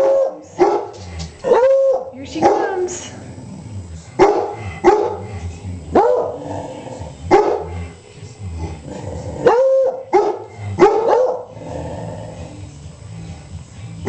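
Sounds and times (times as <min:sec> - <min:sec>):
dog barking: 0:00.0 - 0:02.8, 0:04.2 - 0:05.2, 0:06.0 - 0:06.4, 0:07.3 - 0:07.7, 0:09.4 - 0:11.5.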